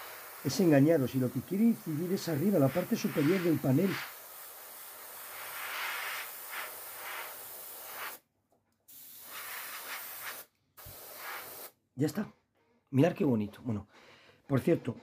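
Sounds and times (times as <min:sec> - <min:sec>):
airbrush spraying hiss: 0:00.0 - 0:08.2, 0:08.9 - 0:11.8.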